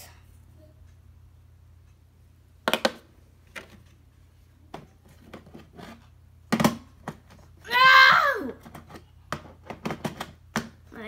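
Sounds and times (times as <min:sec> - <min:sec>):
objects knocking: 0:08.6 - 0:10.8.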